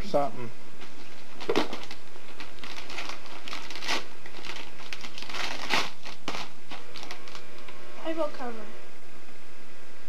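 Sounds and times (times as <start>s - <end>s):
wrapping paper crinkling: 0.9s - 7.7s.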